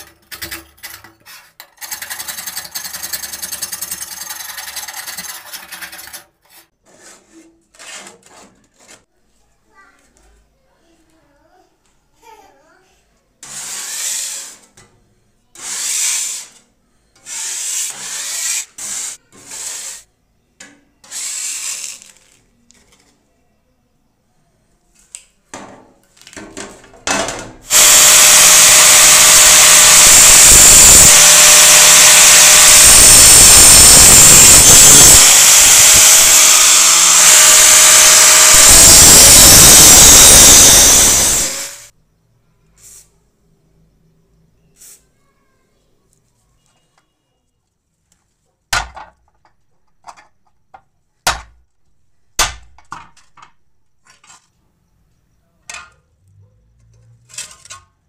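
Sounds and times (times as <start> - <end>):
metal scraper on shovel blade: 17.2 - 20.0
power tool running: 27.7 - 41.9.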